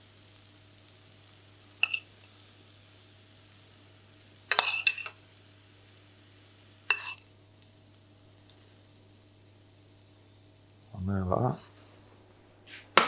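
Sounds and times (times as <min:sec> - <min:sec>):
faint steady hiss: 0:00.0 - 0:13.0
metal spoon clinking on pan: 0:01.8 - 0:02.1, 0:04.5 - 0:05.2, 0:06.9 - 0:07.2.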